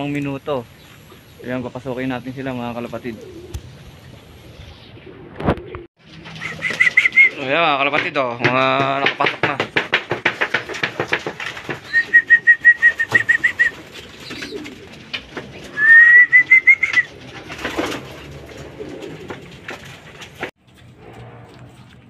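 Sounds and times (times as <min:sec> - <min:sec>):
pigeon wings flapping: 0:05.3 - 0:20.5.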